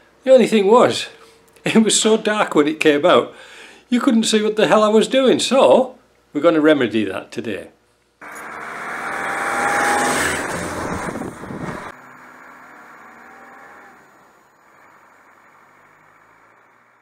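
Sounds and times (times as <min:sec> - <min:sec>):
vehicle driving on gravel: 0:08.2 - 0:17.0.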